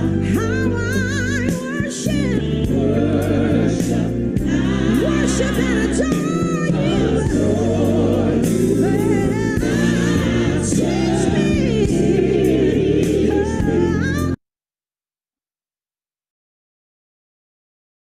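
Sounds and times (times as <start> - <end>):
voices singing gospel: 0.0 - 14.4.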